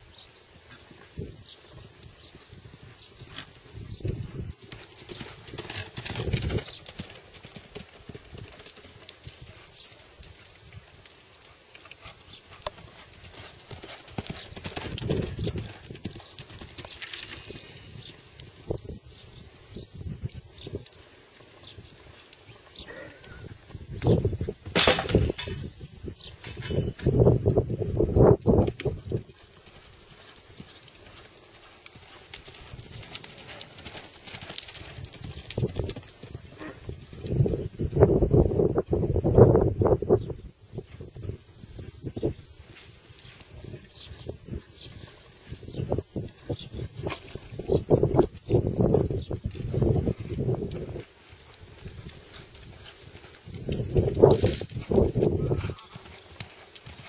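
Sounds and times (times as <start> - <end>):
horse hoofbeats on sand: 3.1 - 10.5, 12.0 - 17.6, 28.6 - 37.6, 42.7 - 57.0.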